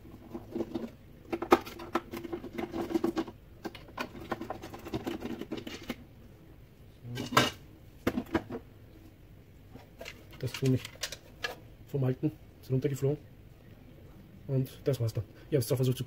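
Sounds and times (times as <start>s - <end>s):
plastic clicking and rattling: 9.8s - 11.6s.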